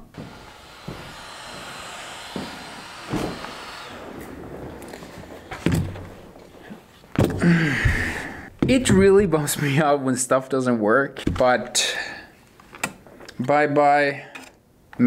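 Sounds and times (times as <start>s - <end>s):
steady low hiss: 1.0s - 11.1s
person grunting: 7.4s - 8.5s.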